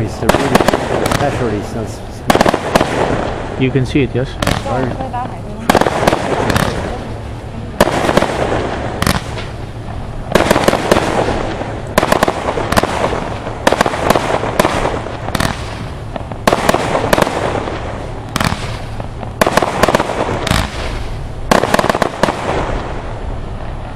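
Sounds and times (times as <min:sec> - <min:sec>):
fireworks firing with crackle: 0:00.0 - 0:23.9.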